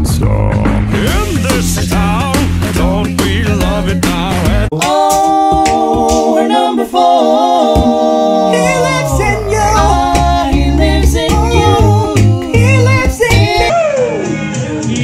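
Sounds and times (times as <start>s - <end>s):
male group singing in harmony: 3.6s - 15.0s
low bass voice sliding down: 7.6s - 13.7s.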